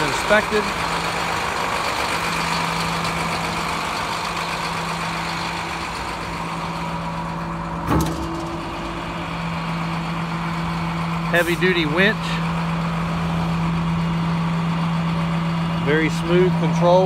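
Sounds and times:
diesel truck engine idling: 0.0 - 17.0
short thump: 7.8 - 8.8.

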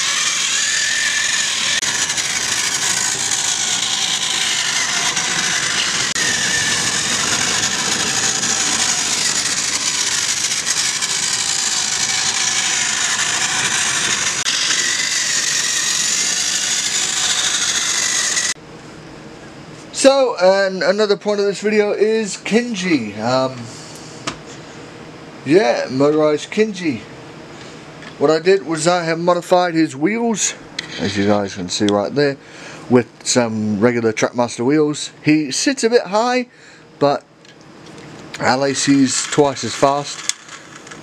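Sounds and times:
toy motor and gears whirring: 0.0 - 18.6, 38.4 - 41.0.

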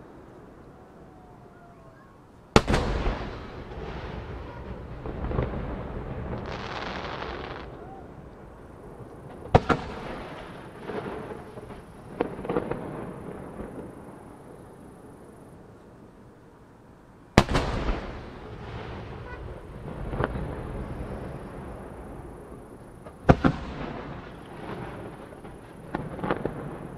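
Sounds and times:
small firework cracks: 2.6 - 14.1, 17.4 - 26.9
firework booms with rumbling tail: 2.6 - 14.2, 17.4 - 26.9.

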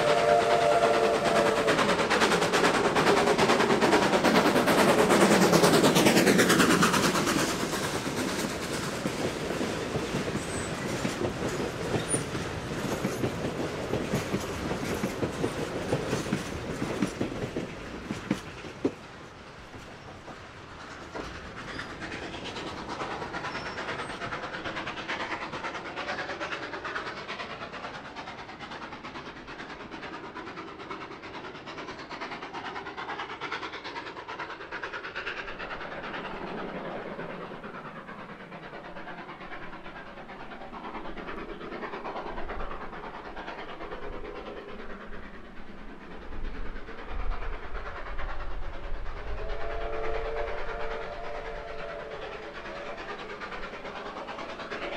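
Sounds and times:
steam whistle: 0.0 - 2.1, 49.3 - 53.0
steam locomotive rumble: 0.0 - 54.9.

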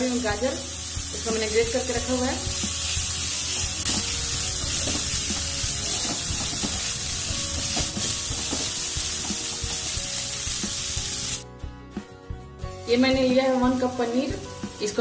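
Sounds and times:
vegetables sizzling in oil: 0.0 - 11.4, 12.8 - 15.0.

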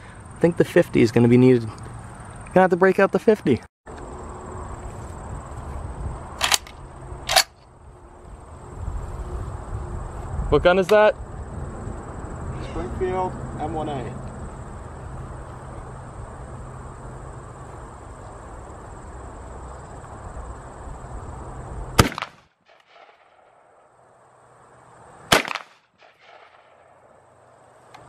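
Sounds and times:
rifle shots: 22.0 - 23.6, 25.3 - 27.0.

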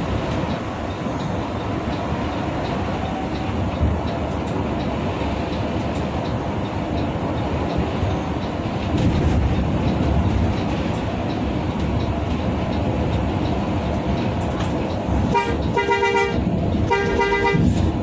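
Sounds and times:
bus engine and road noise: 0.0 - 18.0
multi-tone bus horn: 15.2 - 17.9.

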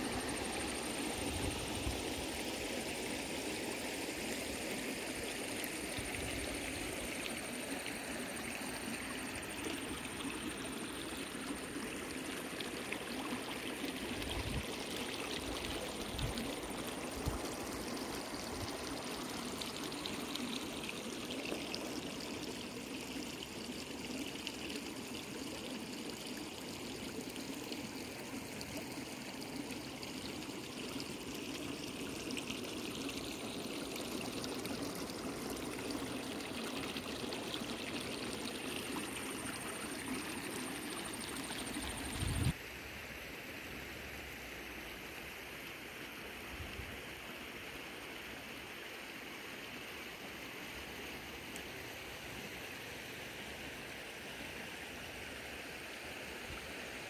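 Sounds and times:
water running over rocks: 0.0 - 42.6.

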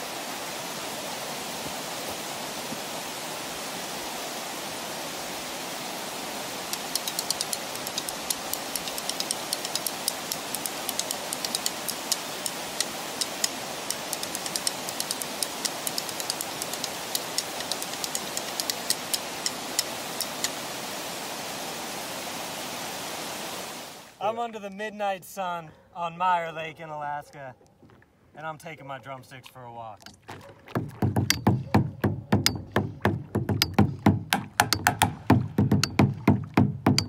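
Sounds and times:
stream rushing over rocks: 0.0 - 24.2, 32.4 - 36.6
drumsticks tapping on rock: 6.7 - 20.6, 30.8 - 37.0.

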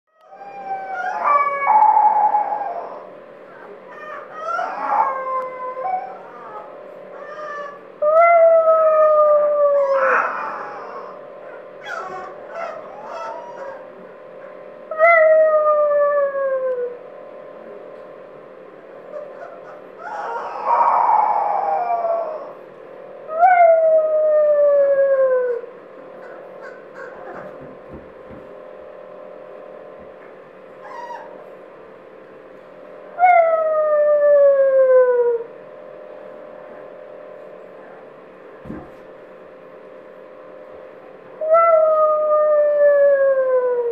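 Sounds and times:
puppies crying: 0.1 - 16.0, 19.1 - 22.6, 25.5 - 27.7, 30.8 - 31.5
puppy howling: 0.1 - 17.0, 19.1 - 22.6, 23.3 - 27.6, 30.8 - 31.5, 33.2 - 35.6, 41.4 - 43.9
puppy yip: 3.5 - 5.0, 6.0 - 7.8, 11.5 - 13.8, 19.1 - 21.4, 26.2 - 27.6, 30.8 - 31.3.

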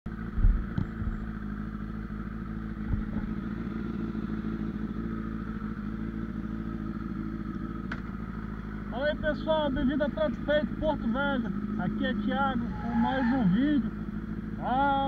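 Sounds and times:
motorcycle engine idling: 0.1 - 15.0
low thump: 0.4 - 1.2, 2.8 - 3.3.

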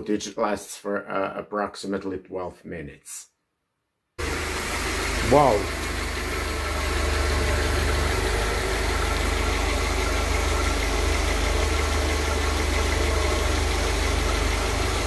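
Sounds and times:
car engine idling: 4.2 - 15.0.

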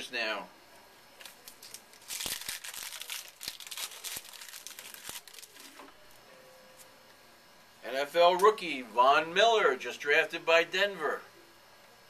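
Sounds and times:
foil pack crinkling: 1.2 - 5.8.

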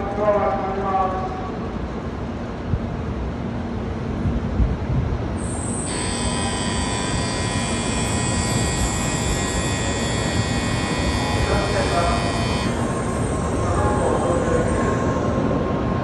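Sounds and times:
high-pitched train whine: 5.3 - 16.0.

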